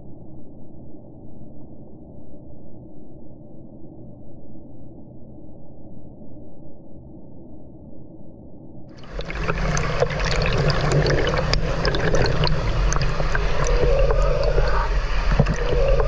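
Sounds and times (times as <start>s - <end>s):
low rumble: 9.0s - 16.0s
shallow stream running: 9.0s - 16.0s
water splashing: 9.0s - 16.0s.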